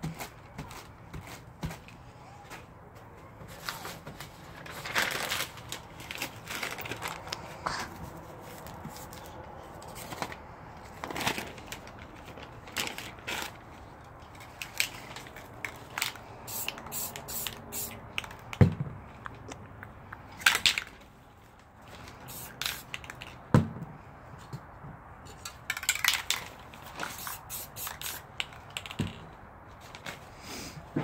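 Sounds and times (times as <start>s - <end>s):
paper rustling and scraping: 3.4s - 17.4s
short spray hisses: 16.5s - 17.9s, 27.1s - 28.2s.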